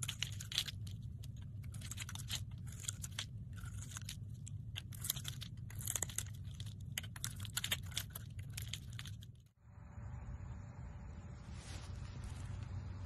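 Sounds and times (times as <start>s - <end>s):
blade shaving soap crackling: 0.0s - 9.6s
low hum: 0.0s - 13.0s.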